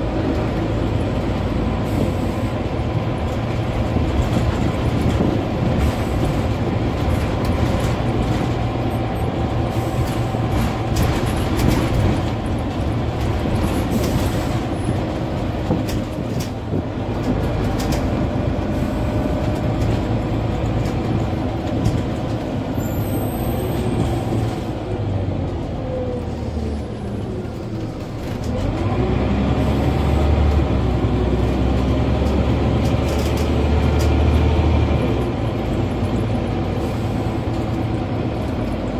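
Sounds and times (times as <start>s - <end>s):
bus diesel engine droning: 0.0s - 38.9s
road noise: 0.0s - 38.9s
interior clicks and rattles: 2.9s - 22.7s, 30.1s - 38.9s.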